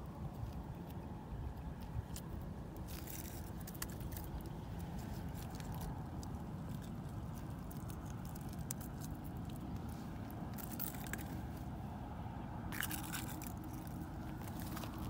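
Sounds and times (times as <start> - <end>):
steady low rumble: 0.0 - 15.0
scrapes on rocks: 12.7 - 15.0.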